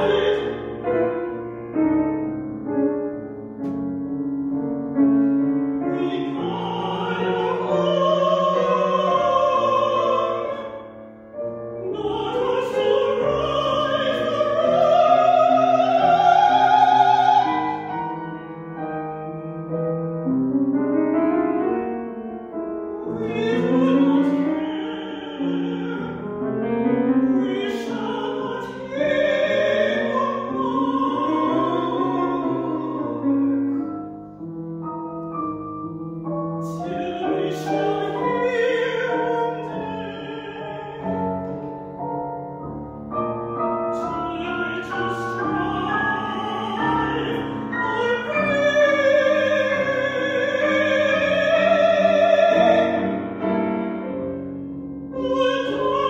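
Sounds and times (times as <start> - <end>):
woman singing with vibrato: 0.0 - 1.0, 5.8 - 10.9, 11.8 - 18.3, 23.0 - 33.6, 36.6 - 41.8, 43.9 - 53.2, 55.1 - 56.0
grand piano accompaniment: 0.0 - 56.0.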